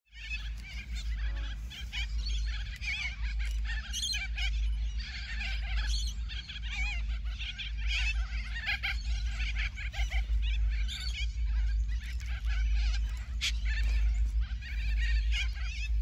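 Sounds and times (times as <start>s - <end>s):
steady low rumble: 0.2s - 16.0s.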